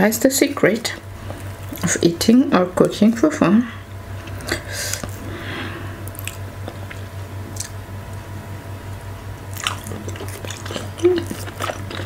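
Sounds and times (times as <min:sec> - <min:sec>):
steady low hum: 0:00.0 - 0:12.0
wet mouth smacks and chewing: 0:09.5 - 0:12.0.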